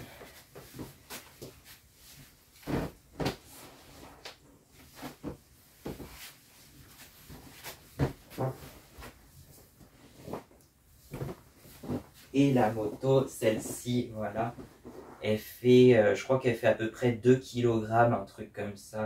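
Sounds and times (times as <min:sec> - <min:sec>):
knocks and handling noise: 0:00.5 - 0:12.2
inflatable toy thumps: 0:02.6 - 0:03.5, 0:05.2 - 0:06.2, 0:08.0 - 0:08.9.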